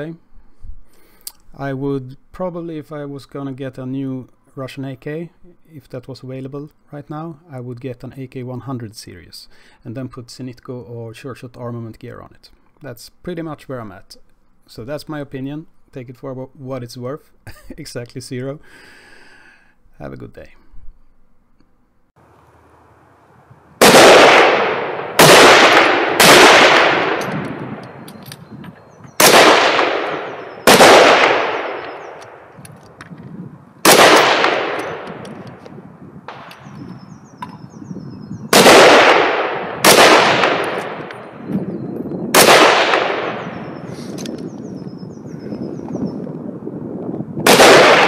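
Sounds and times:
rifle shots with echo: 23.8s - 28.1s, 29.2s - 32.6s, 33.8s - 35.5s, 36.3s - 36.8s, 38.5s - 41.4s, 42.3s - 43.9s, 47.4s - 48.0s.

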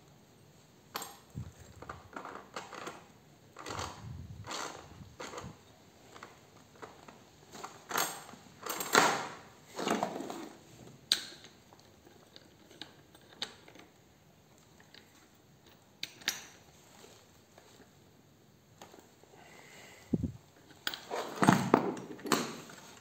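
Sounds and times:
metal parts and tools scraping: 20.1s - 23.0s.

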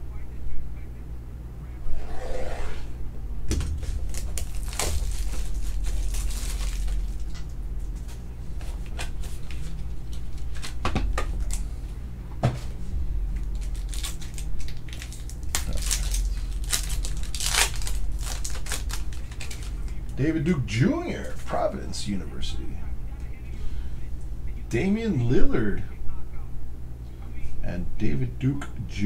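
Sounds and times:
steady low hum: 0.0s - 29.0s
foil pack crinkling: 3.6s - 11.8s, 13.4s - 20.2s.

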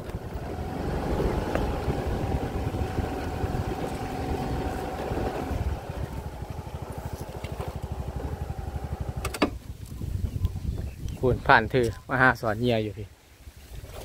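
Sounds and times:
small engine idling: 0.0s - 9.9s.

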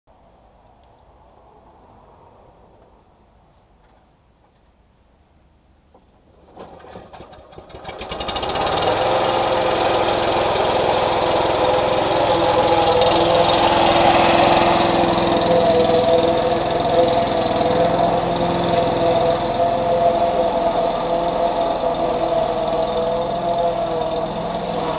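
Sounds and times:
lawn mower running: 6.0s - 24.9s.

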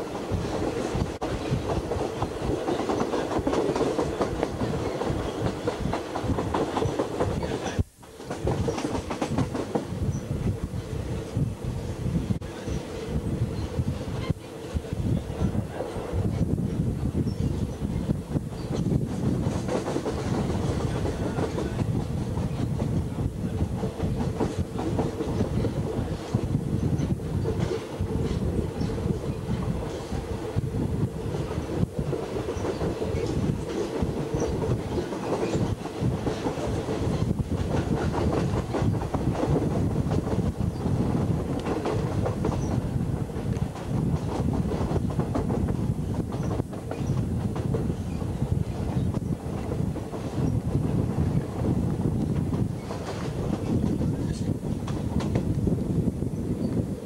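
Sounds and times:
train wheels rumbling on track: 0.0s - 57.0s
clickety-clack clatter: 0.5s - 9.9s, 18.7s - 30.3s, 32.1s - 51.6s, 52.2s - 55.6s.

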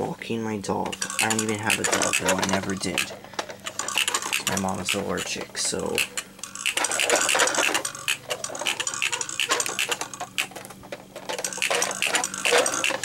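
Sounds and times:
toy clicking and clacking on carpet: 0.8s - 13.0s.

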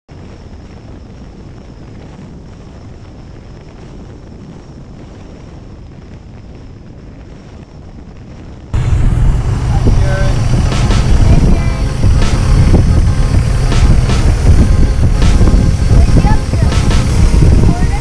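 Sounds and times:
wind rushing over camera: 0.1s - 18.0s
road and engine rumble: 8.6s - 18.0s
faint high whine: 8.8s - 18.0s.

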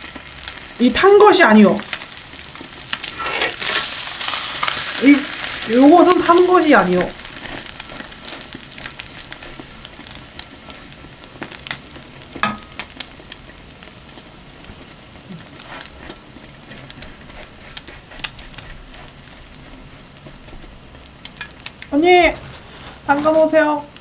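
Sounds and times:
food sizzling in butter: 0.0s - 24.0s
metal spatulas scraping pan: 3.0s - 4.8s.

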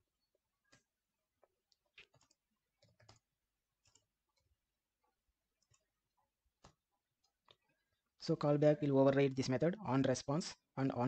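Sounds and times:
keyboard keys typing: 1.8s - 4.4s.

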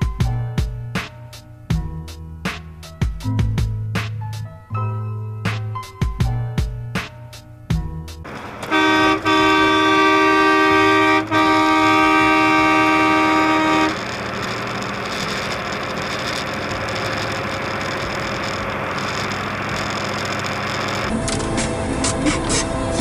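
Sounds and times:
truck road and engine noise: 0.0s - 23.0s
two-tone air horn blasts: 8.3s - 18.6s.

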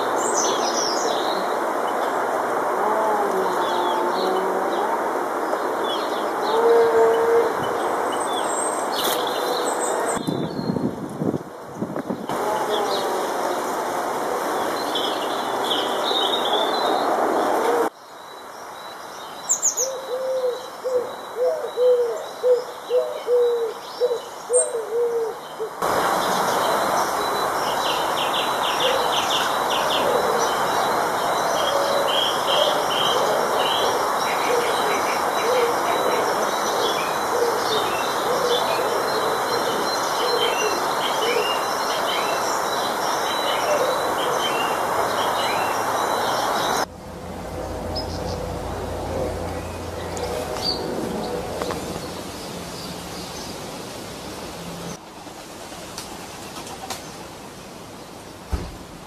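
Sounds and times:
steady background hiss: 0.0s - 10.2s, 10.9s - 47.1s, 48.2s - 59.0s
small birds chirping: 7.6s - 10.9s
low hooting calls: 24.6s - 42.4s.

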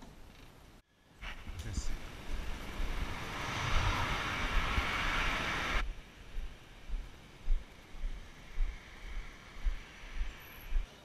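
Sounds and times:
street traffic noise: 1.1s - 11.0s
faint low thumps: 5.8s - 9.8s.

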